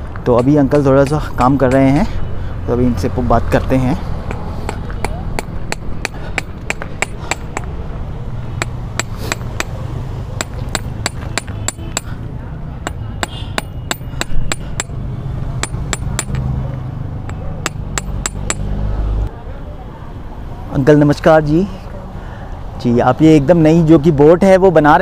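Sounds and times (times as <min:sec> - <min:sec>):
hammer tapping metal on anvil: 0:00.3 - 0:02.0, 0:04.3 - 0:07.8, 0:08.6 - 0:09.8, 0:10.4 - 0:12.2, 0:12.8 - 0:15.0, 0:15.6 - 0:16.5, 0:17.3 - 0:18.7.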